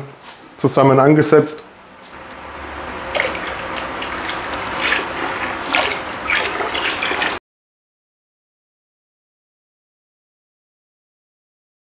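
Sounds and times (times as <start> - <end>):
liquid pouring into liquid: 3.0 - 7.4.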